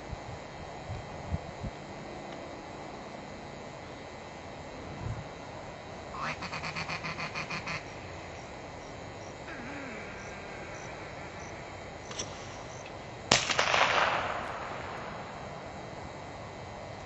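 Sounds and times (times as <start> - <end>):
shotgun blast: 13.3 - 15.2.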